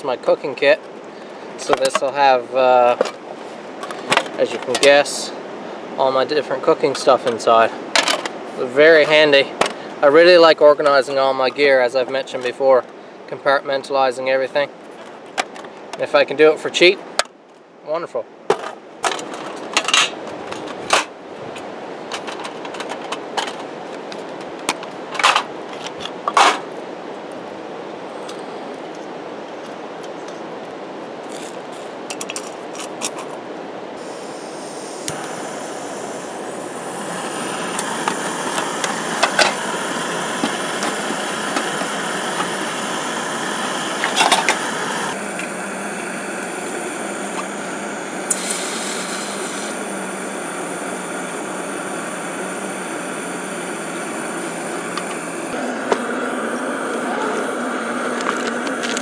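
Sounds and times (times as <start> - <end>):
gas stove hissing roar: 0.0 - 12.0, 33.9 - 59.0.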